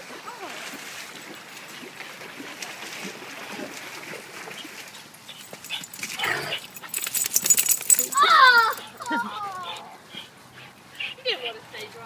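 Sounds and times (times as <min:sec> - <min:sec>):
dog whining: 0:08.0 - 0:10.3.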